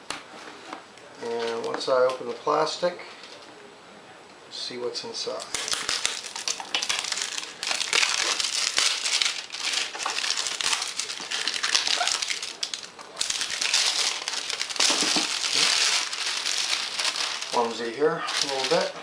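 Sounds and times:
plastic wrapping crinkling: 5.4 - 19.0.

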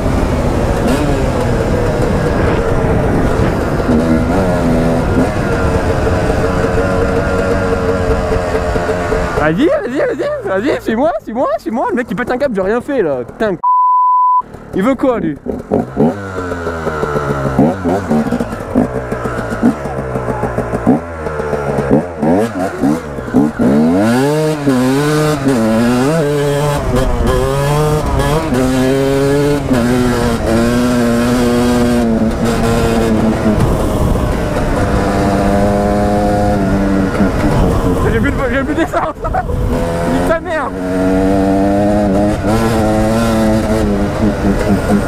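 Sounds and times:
wind on microphone: 0.0 - 7.2, 29.4 - 40.2
dirt bike engine revving: 0.0 - 12.5, 14.5 - 45.0.

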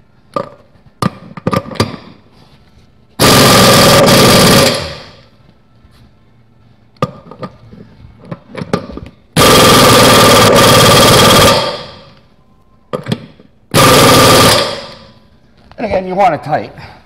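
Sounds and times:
air impact wrench hammering: 3.2 - 5.3, 9.4 - 12.2, 13.7 - 15.2.

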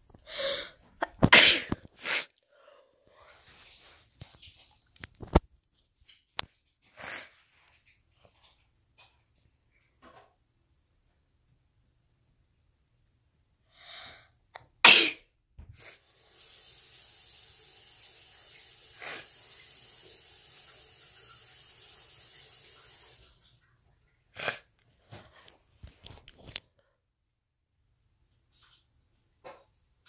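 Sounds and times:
person sneezing: 0.3 - 2.3, 14.8 - 15.2.

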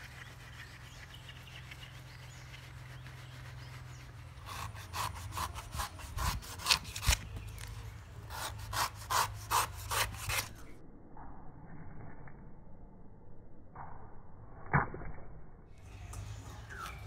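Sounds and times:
knife scraping coconut husk: 0.0 - 7.7, 8.3 - 10.7.

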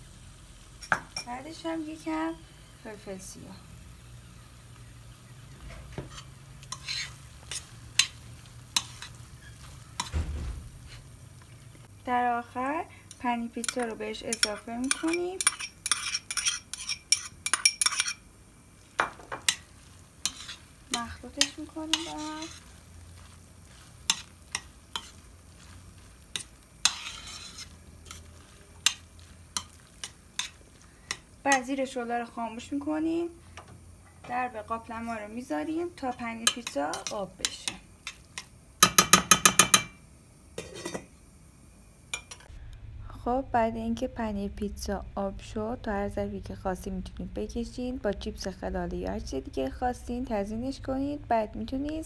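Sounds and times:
faint sizzle: 0.0 - 52.0
spoon stirring thick mixture: 13.1 - 18.2, 19.3 - 31.7
spoon clinking on metal pan: 13.6 - 18.2, 36.4 - 40.0.

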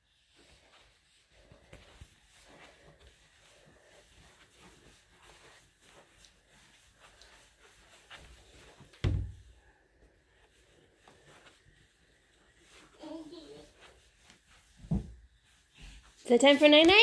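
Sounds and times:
soft rustles: 0.0 - 17.0
toddler steps on carpet: 12.5 - 17.0.

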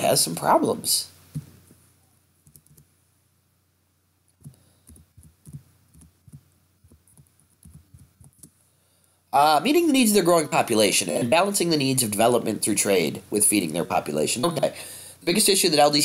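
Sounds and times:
keyboard typing: 2.4 - 2.9, 4.4 - 8.5.

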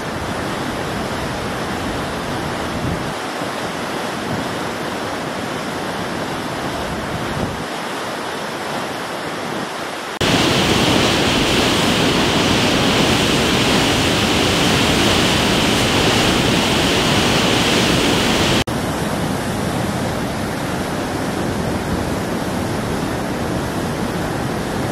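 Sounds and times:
floodwater rushing through spillway: 0.0 - 24.9.

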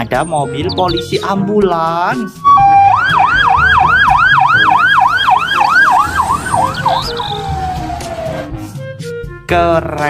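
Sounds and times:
toy electronic siren yelping: 2.4 - 8.2.

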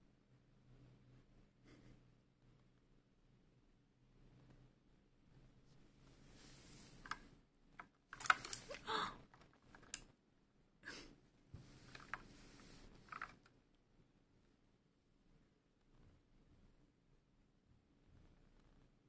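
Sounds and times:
soft rustling: 4.2 - 7.4, 11.4 - 13.6
keyboard keys clicking: 8.1 - 8.8.

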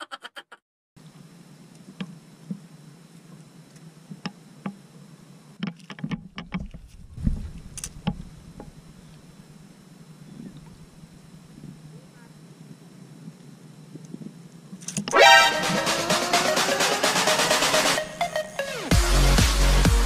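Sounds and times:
low rumble of boat on water: 6.2 - 12.4.

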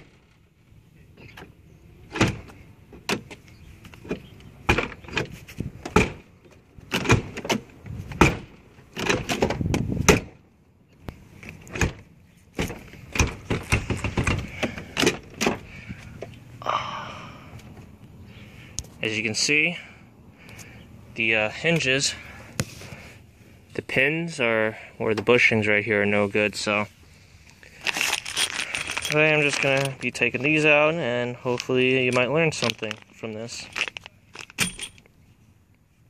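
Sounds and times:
car door clunks and latch clicks: 2.1 - 10.4.

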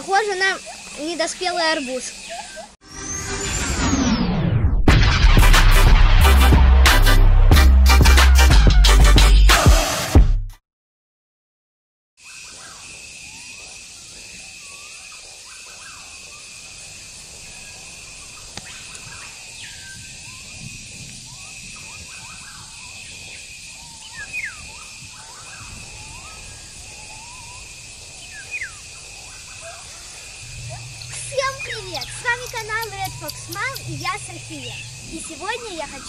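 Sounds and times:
birds chirping: 0.0 - 2.8, 12.2 - 36.0
steady high-pitched hum: 16.8 - 36.0.

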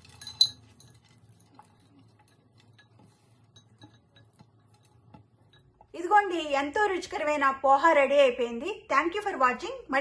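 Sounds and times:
cookware clinking: 0.0 - 5.9.

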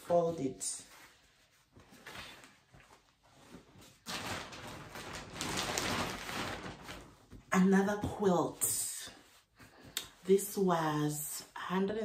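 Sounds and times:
packaging rustling: 1.9 - 7.4.

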